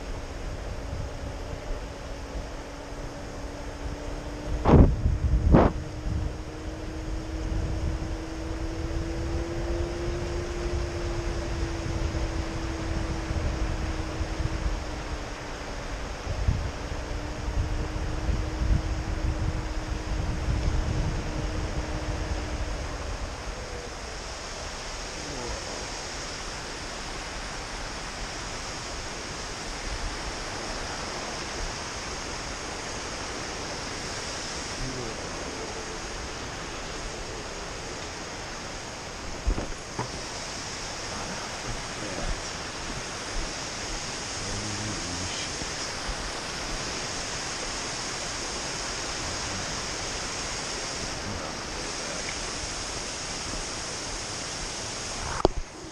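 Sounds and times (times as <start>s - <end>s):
water rushing over rocks: 22.7s - 55.9s.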